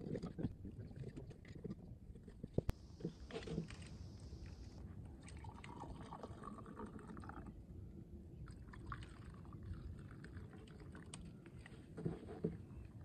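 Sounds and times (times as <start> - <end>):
coffee pouring into cup: 5.4 - 7.5
light clicks and drips: 8.4 - 13.0.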